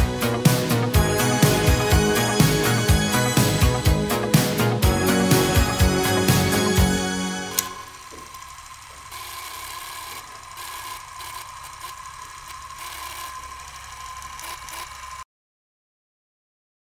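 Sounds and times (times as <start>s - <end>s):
music: 0.0s - 7.9s
small machine running: 0.0s - 15.3s.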